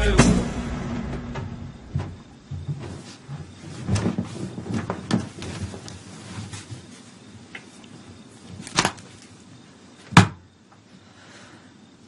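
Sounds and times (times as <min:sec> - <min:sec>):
louder swish: 0:00.0 - 0:02.4
bedding rustling: 0:01.9 - 0:09.3.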